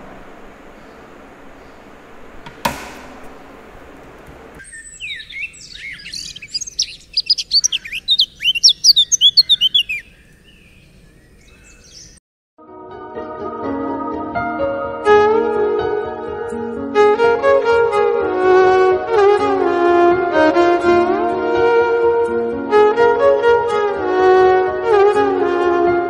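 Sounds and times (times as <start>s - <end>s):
birds chirping: 0.0s - 12.2s
sharp click: 2.4s - 4.7s.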